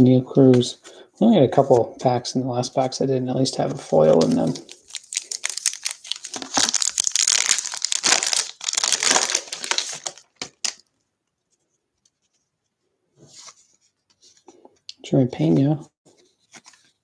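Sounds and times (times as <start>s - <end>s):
foil wrapper crinkling: 4.2s - 10.8s.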